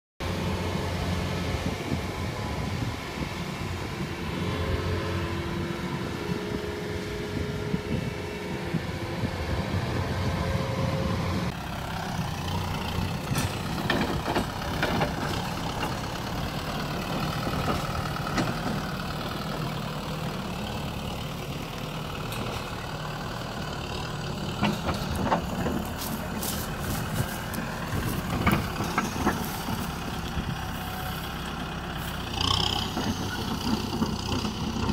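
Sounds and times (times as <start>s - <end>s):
combine harvester running: 0.2s - 34.9s
tractor diesel engine: 0.2s - 34.9s
metal clanks and knocks: 13.2s - 16.1s, 24.5s - 30.8s.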